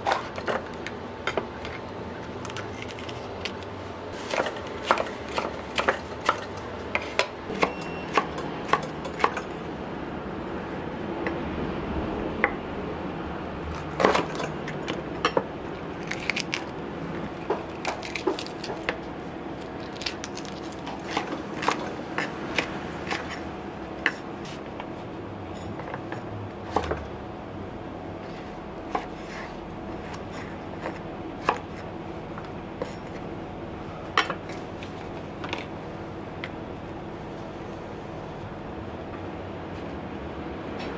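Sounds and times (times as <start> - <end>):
knife chopping on wooden board: 4.2 - 9.4, 28.9 - 31.9.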